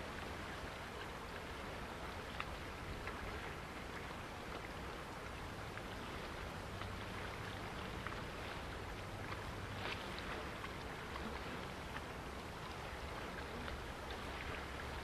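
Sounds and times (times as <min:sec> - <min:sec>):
choppy water: 0:00.0 - 0:15.0
wind: 0:00.0 - 0:15.0
faint ticks: 0:02.3 - 0:03.2
small splashes: 0:05.7 - 0:15.0.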